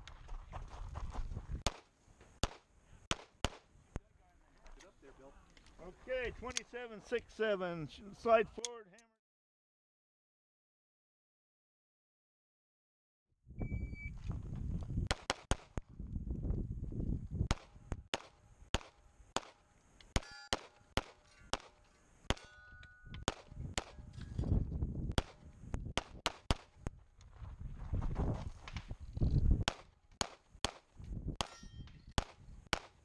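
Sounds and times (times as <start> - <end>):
pistol shots: 17.5 - 19.6, 20.2 - 22.5, 23.2 - 24.0, 25.2 - 25.4.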